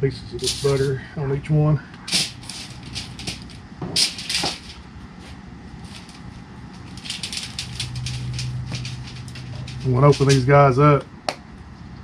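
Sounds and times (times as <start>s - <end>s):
aluminium foil crackling: 0.4s - 1.0s, 2.0s - 10.8s
foil crinkling and tapping: 2.1s - 10.5s.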